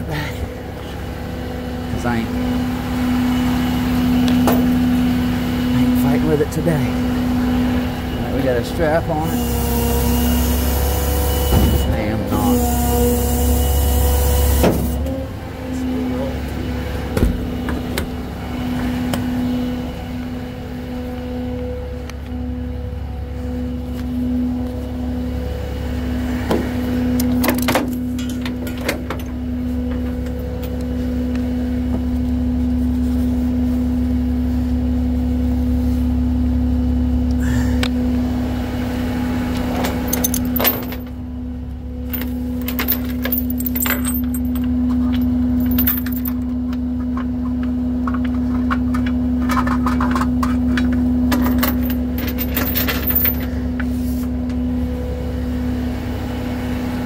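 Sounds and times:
tow truck engine idling: 0.0s - 57.0s
metallic clinks and jangles: 42.1s - 46.4s.

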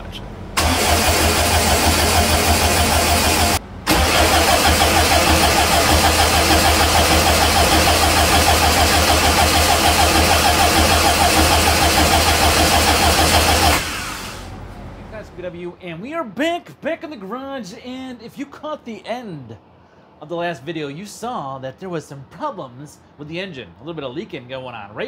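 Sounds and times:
car engine idling: 0.0s - 15.4s.

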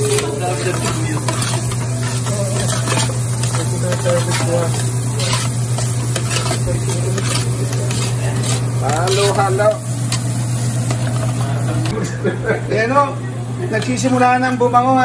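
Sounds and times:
metal spoon scraping pot: 0.0s - 11.5s
onions sizzling: 0.0s - 13.0s, 13.6s - 15.0s
steady low hum: 0.0s - 14.1s.

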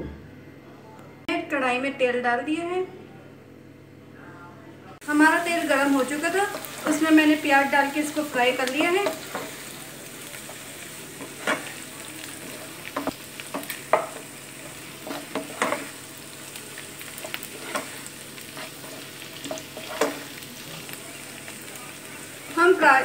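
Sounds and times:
onions sizzling in hot oil: 5.0s - 23.0s
wooden spatula scraping a pan: 14.0s - 16.0s, 17.2s - 20.3s.

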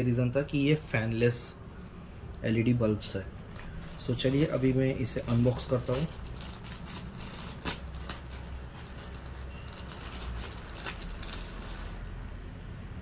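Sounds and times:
plastic crinkling: 3.3s - 12.2s
scissors cutting plastic: 3.6s - 12.0s.

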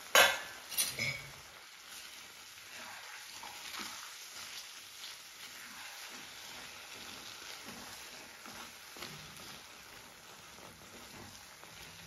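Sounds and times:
food sizzling in a pan: 0.0s - 12.0s
spoon scraping a metal pan: 0.2s - 1.4s.

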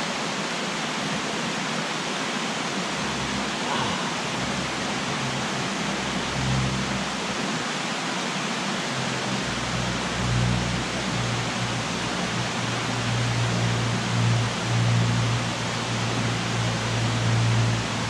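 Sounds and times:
creek water rushing: 0.0s - 18.0s
low tones: 3.0s - 7.4s, 8.9s - 18.0s.

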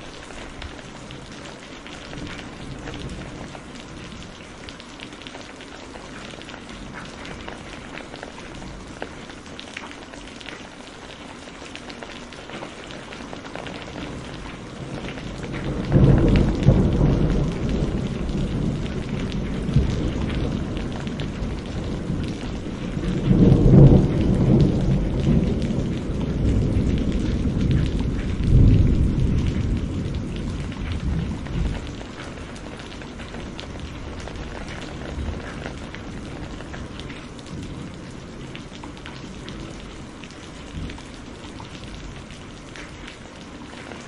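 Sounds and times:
heavy rain falling: 0.0s - 44.0s
rolling thunder: 14.2s - 39.9s.

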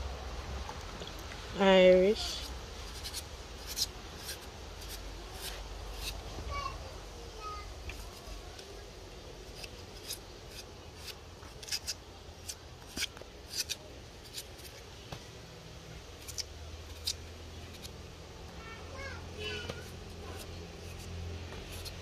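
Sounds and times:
knife slicing potato: 2.3s - 6.2s, 9.5s - 14.8s, 16.2s - 18.0s, 19.6s - 22.0s.

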